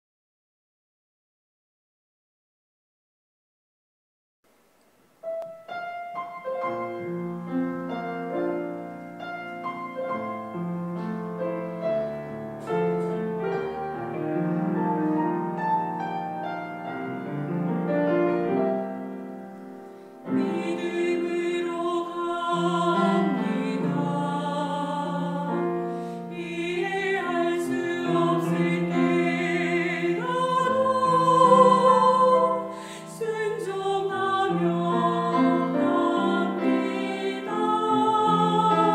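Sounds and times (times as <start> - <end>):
piano and strings: 5.0 - 38.9
choir singing: 20.2 - 38.9.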